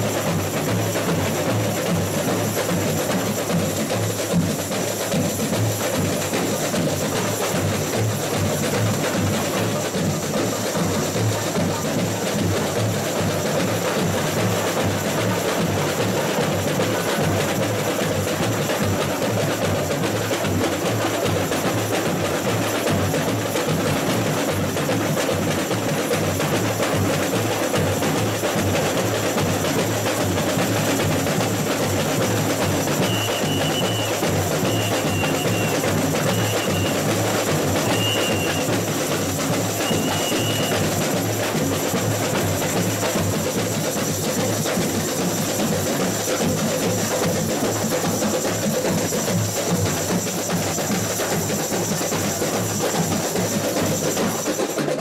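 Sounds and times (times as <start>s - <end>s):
samba drums playing: 0.0s - 55.0s
whistle blasts: 33.0s - 38.9s, 39.7s - 40.9s.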